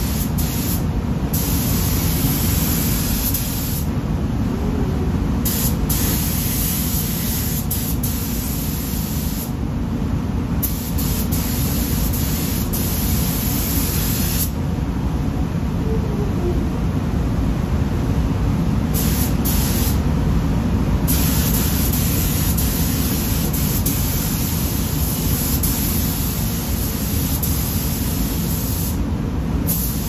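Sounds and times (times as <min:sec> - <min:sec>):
spray gun air hiss: 0:00.0 - 0:04.0, 0:05.4 - 0:09.6, 0:10.6 - 0:14.6, 0:18.9 - 0:20.0, 0:21.0 - 0:29.0, 0:29.6 - 0:30.0
low rumble: 0:03.9 - 0:05.6, 0:14.6 - 0:18.8.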